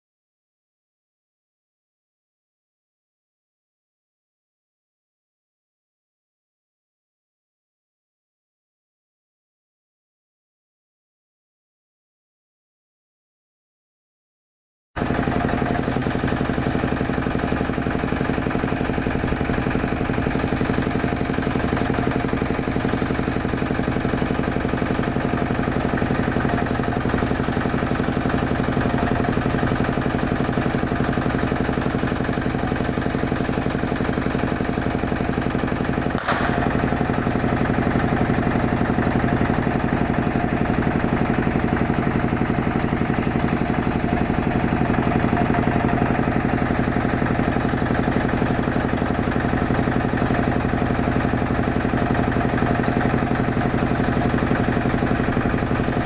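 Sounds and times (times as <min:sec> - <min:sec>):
engine running steadily: 0:15.0 - 0:56.0
brief click: 0:36.2 - 0:36.9.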